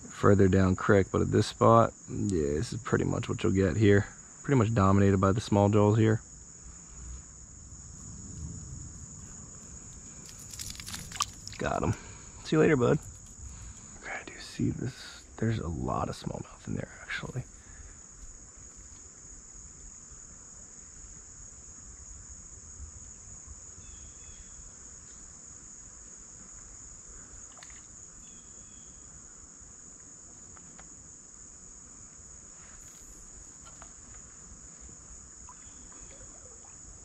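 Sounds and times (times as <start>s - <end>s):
insects buzzing trill: 0.0s - 37.0s.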